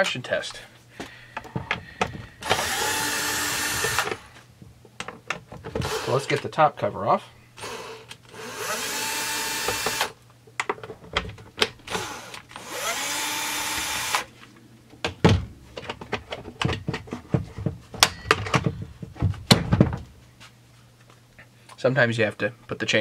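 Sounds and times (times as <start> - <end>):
cordless drill whirring: 2.4 - 4.3, 5.8 - 6.3, 7.6 - 10.2, 11.9 - 14.3.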